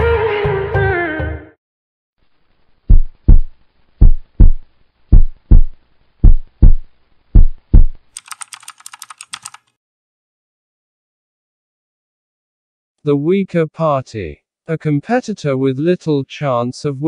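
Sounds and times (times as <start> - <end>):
heartbeat thumps: 2.9 - 8.0
keyboard typing clicks: 8.2 - 9.7.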